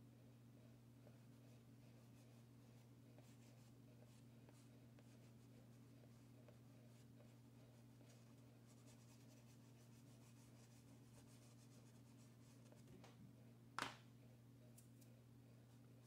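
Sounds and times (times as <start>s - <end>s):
steady low hum: 0.0s - 16.0s
chalk pastel scratching paper: 1.1s - 12.9s.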